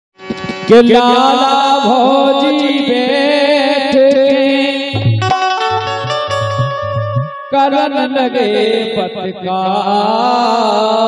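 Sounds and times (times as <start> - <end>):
harmonium chords: 0.2 - 9.4
person singing wordlessly: 0.7 - 11.0
drum strokes: 5.0 - 7.6
pulsing low notes: 5.0 - 7.6.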